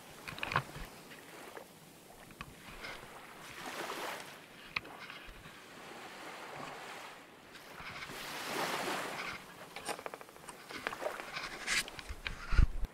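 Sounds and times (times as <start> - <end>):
sea water lapping: 0.0 - 12.5.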